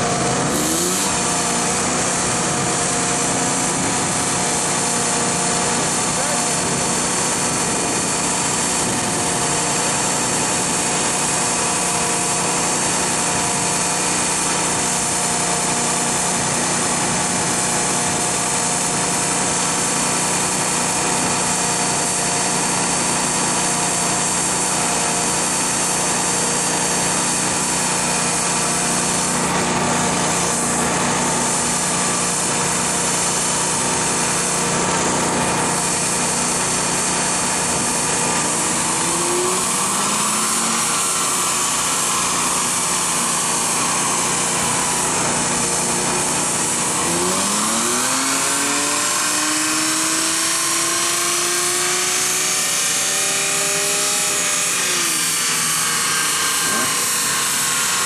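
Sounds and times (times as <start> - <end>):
car engine running on dyno: 0.0 - 58.0.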